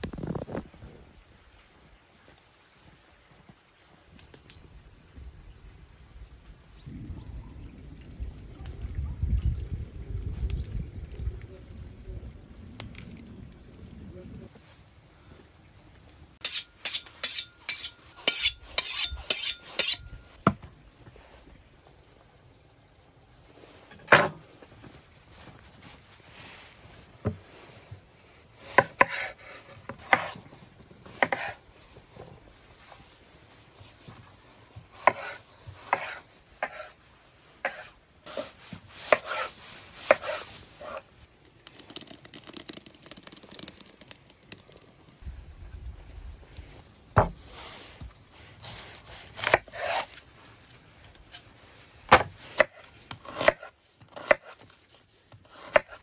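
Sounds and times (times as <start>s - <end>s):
knife sharpening on steel: 16.4s - 20.2s
knife chopping on cutting board: 35.0s - 36.9s.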